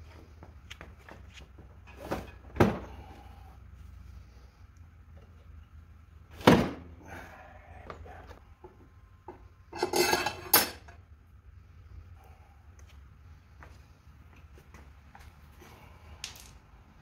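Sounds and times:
metal clanking: 0:09.7 - 0:11.0.

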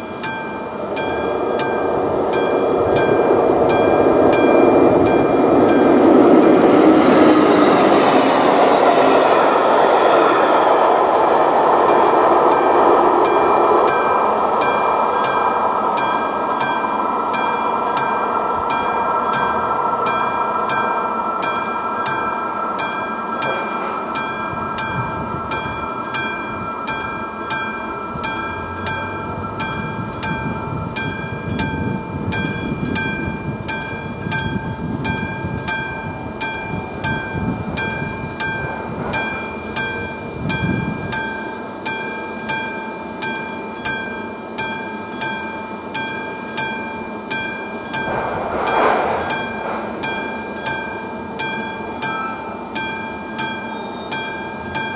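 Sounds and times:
level crossing warning bell: 0:00.0 - 0:10.6, 0:11.2 - 0:54.9.

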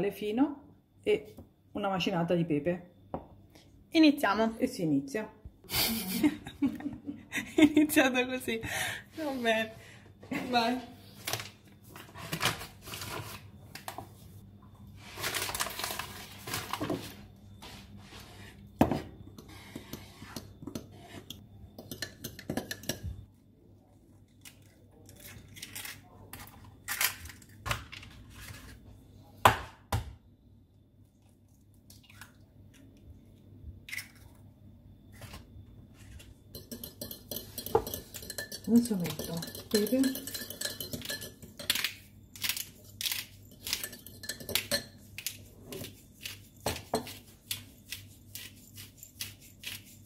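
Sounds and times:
flour bag rustling: 0:15.0 - 0:17.3.

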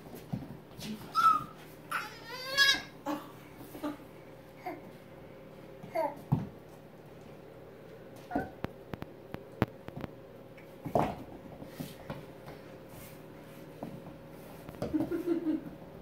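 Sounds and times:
baby goat crying: 0:01.2 - 0:03.0.

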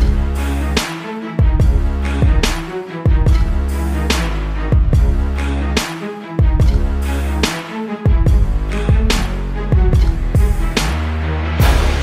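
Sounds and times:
music with heavy bass: 0:00.0 - 0:12.0
drum hits: 0:11.6 - 0:12.0.

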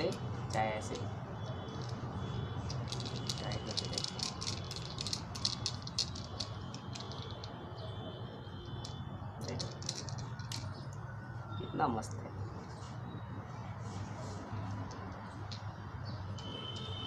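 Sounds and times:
small plastic clicks and rattles: 0:02.7 - 0:07.6, 0:08.8 - 0:11.0.

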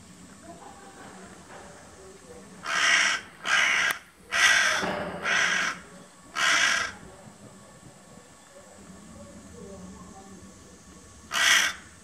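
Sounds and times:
crow cawing: 0:02.6 - 0:07.0, 0:11.3 - 0:12.0.

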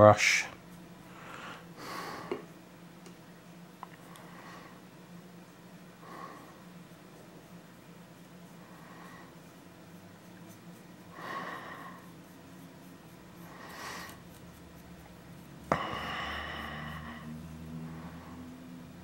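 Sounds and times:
person breathing: 0:01.1 - 0:02.5, 0:04.0 - 0:04.8, 0:06.0 - 0:06.7, 0:08.6 - 0:09.4, 0:11.1 - 0:12.4, 0:13.4 - 0:14.3, 0:15.6 - 0:18.7.

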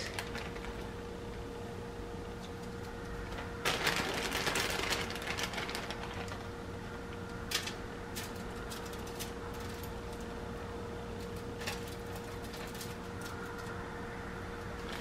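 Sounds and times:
cornflakes crackling: 0:00.0 - 0:01.0, 0:03.3 - 0:06.5
plastic bag crinkling: 0:00.0 - 0:01.0, 0:03.2 - 0:06.5
faint steady hum: 0:00.0 - 0:15.0.

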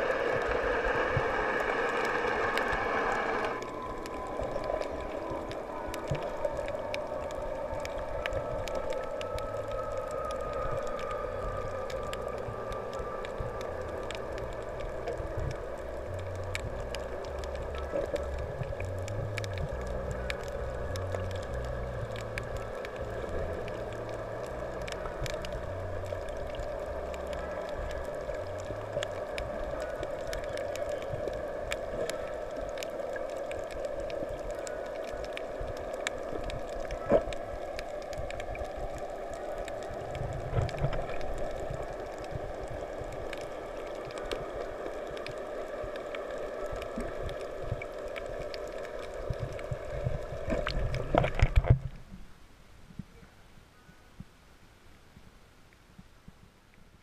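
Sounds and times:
small sharp clicks and crackles: 0:00.0 - 0:52.3
muffled underwater wash: 0:00.0 - 0:57.0.

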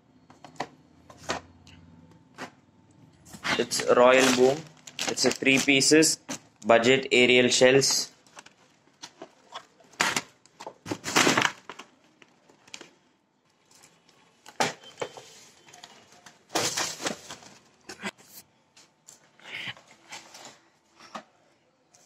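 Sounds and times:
cardboard scraping and rustling: 0:03.3 - 0:05.8.

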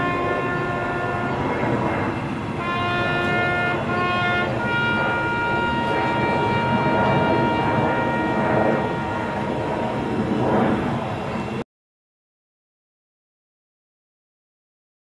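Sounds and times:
brass instrument long notes: 0:00.0 - 0:11.0.

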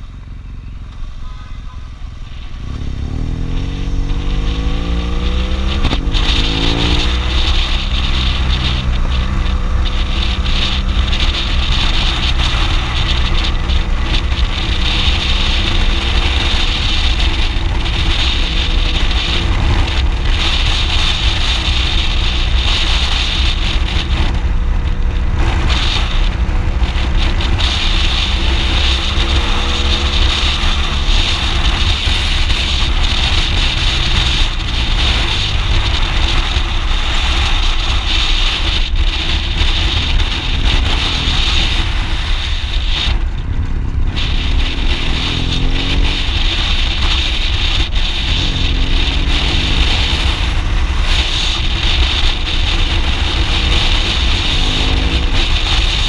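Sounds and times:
motorcycle engine running: 0:00.0 - 0:56.0
wind noise on microphone: 0:00.0 - 0:56.0.

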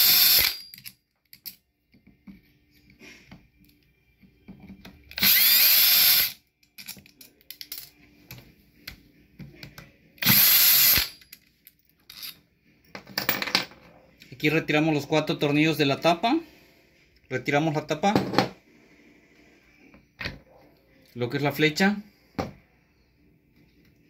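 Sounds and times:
drill motor whining: 0:00.0 - 0:00.6, 0:05.1 - 0:06.4, 0:10.2 - 0:11.1.

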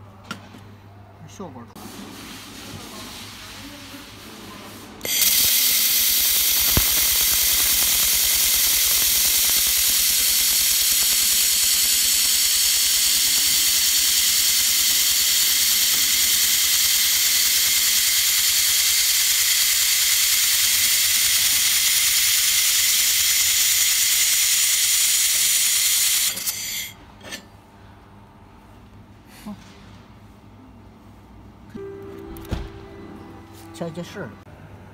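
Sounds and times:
laser welder hissing: 0:05.0 - 0:27.0.

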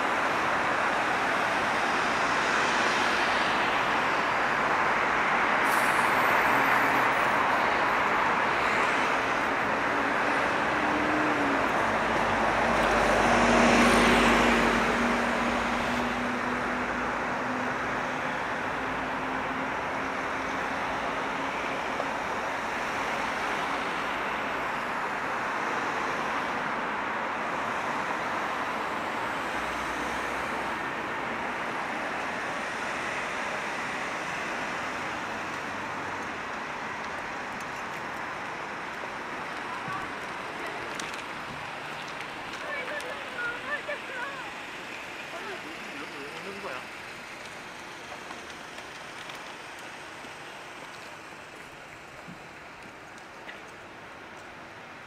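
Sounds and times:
vehicle engine hum: 0:00.0 - 0:26.8
cars passing: 0:00.0 - 0:55.0.

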